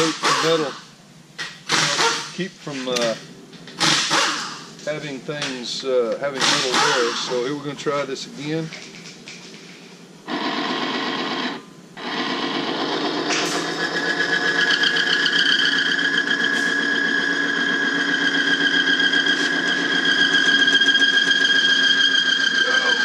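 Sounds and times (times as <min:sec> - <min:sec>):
electric motor running: 0:10.3 - 0:23.0
high metal friction squeal: 0:14.0 - 0:23.0.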